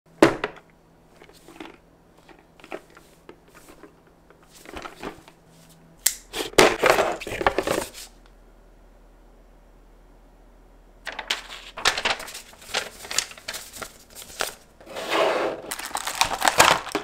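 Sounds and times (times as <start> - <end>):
plastic packaging crinkling: 11.1 - 14.6, 15.7 - 17.0
taps and rustles of packaging: 15.7 - 17.0.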